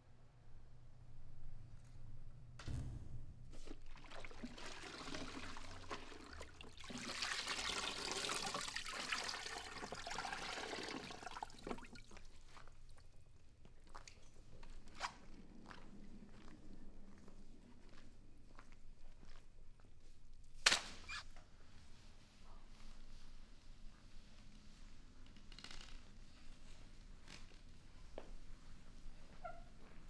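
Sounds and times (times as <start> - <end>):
water pouring into bucket: 3.8 - 12.2.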